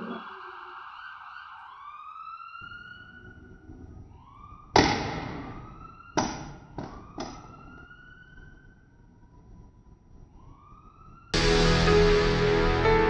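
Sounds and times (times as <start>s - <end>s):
ambulance siren wailing: 0.0s - 9.7s.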